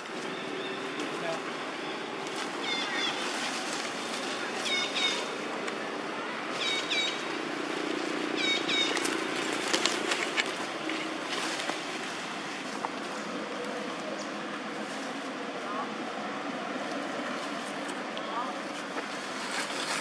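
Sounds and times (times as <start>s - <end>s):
steady forest hiss: 0.0s - 20.0s
rustling: 2.2s - 5.4s, 6.5s - 13.9s, 18.7s - 20.0s
twigs snapping: 8.7s - 11.9s.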